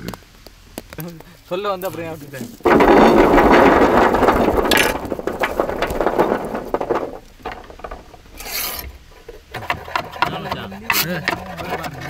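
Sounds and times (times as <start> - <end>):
clinks: 2.6 - 9.4.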